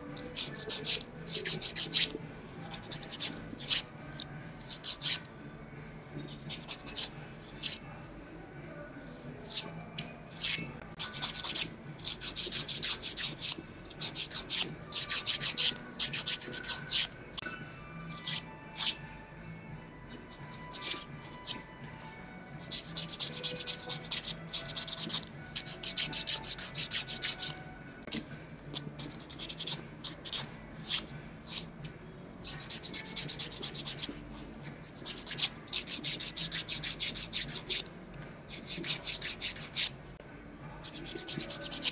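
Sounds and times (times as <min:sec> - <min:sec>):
nail file rasping on fingernail: 0:00.2 - 0:05.3, 0:06.3 - 0:07.8, 0:09.4 - 0:09.7, 0:10.3 - 0:17.1, 0:18.1 - 0:19.0, 0:20.2 - 0:21.6, 0:22.6 - 0:31.7, 0:32.4 - 0:37.8, 0:38.5 - 0:39.9, 0:40.8 - 0:41.9.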